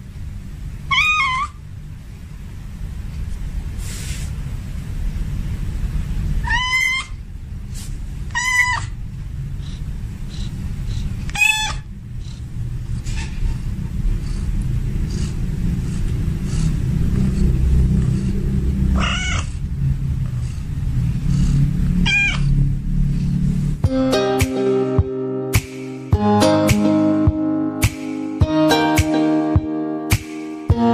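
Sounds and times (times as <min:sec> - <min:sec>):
cat meowing: 0:00.9 - 0:01.6, 0:06.4 - 0:07.2, 0:08.3 - 0:09.0, 0:11.3 - 0:11.9, 0:19.0 - 0:19.5, 0:22.0 - 0:22.5
steady low rumble: 0:11.9 - 0:24.1
acoustic guitar music: 0:23.8 - 0:30.9.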